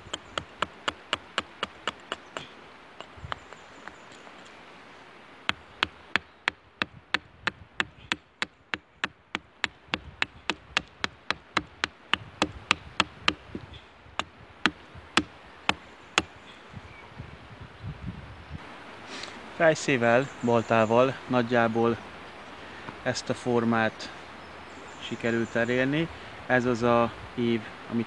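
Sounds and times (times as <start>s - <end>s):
hatchet chopping wood: 0.0s - 3.6s, 5.5s - 16.3s.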